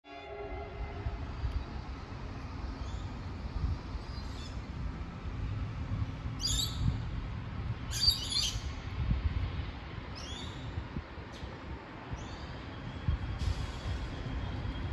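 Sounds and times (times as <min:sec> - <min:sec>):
freight train rumble: 0:00.0 - 0:14.9.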